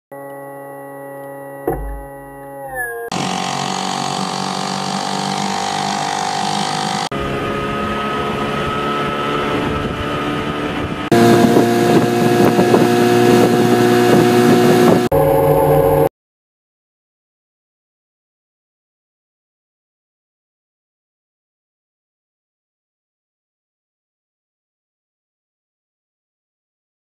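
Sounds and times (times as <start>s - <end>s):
outboard motors running: 0.1s - 16.1s.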